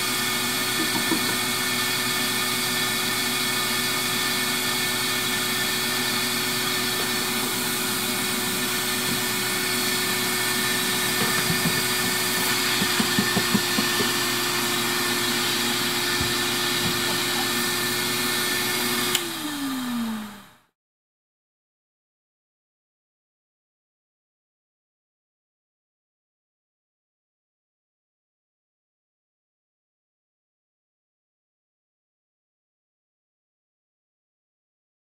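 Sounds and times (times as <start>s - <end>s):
vacuum motor humming: 0.0s - 20.5s.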